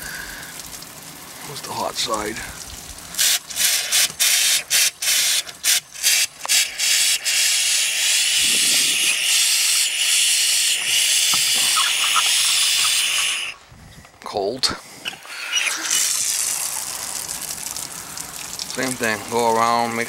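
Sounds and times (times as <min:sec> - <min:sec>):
compressed air hissing through shower: 0:03.1 - 0:13.6, 0:14.9 - 0:18.6.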